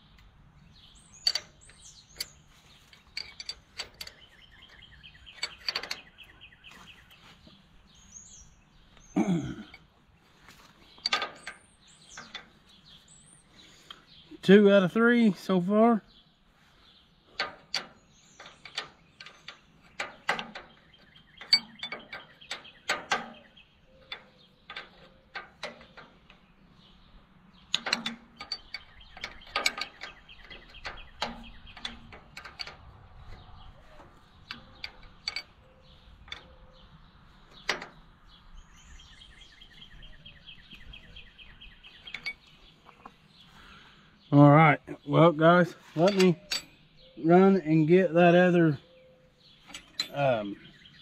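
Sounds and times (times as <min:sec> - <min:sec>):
metallic clinks of hand tools: 0:46.0 - 0:46.8, 0:49.6 - 0:50.7.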